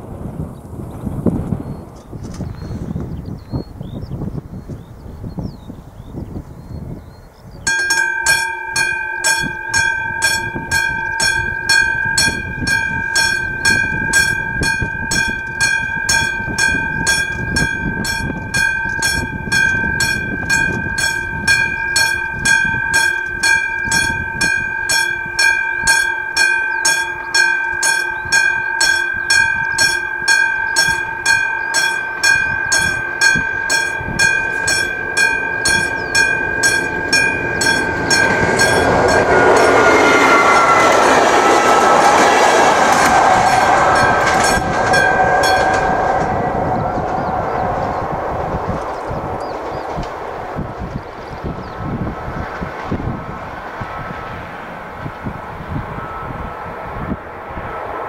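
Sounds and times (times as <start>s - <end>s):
level crossing warning bell: 7.7s - 50.7s.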